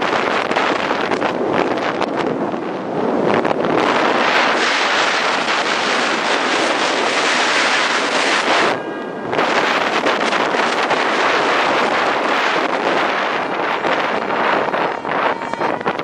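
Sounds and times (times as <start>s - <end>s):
car road noise: 0.0s - 16.0s
wind buffeting microphone: 0.0s - 16.0s.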